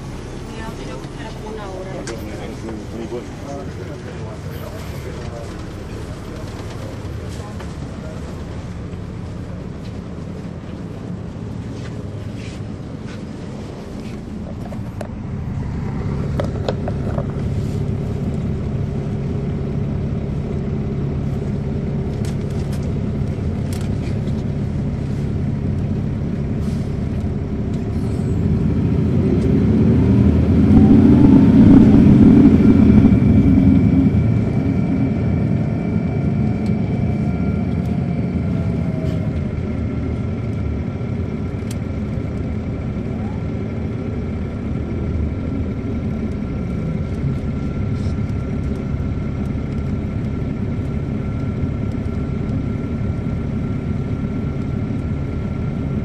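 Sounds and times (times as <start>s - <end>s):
diesel engine drone inside coach: 0.0s - 56.0s
faint high whine: 30.3s - 39.6s.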